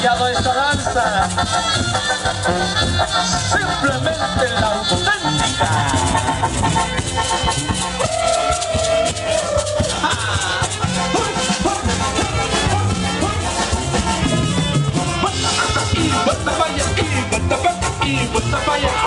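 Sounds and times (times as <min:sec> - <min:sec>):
festive dance music: 0:00.0 - 0:19.0
shaken rattle percussion: 0:04.0 - 0:14.5.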